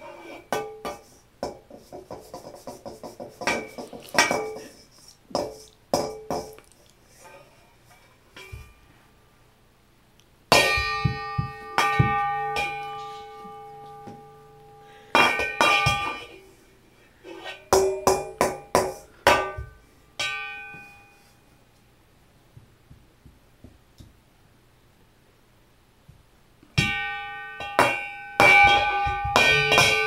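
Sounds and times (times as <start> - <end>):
utensil striking metal bowl: 0.5 - 4.7, 5.3 - 6.6, 10.5 - 14.3, 15.2 - 16.3, 17.7 - 20.8, 26.8 - 30.0.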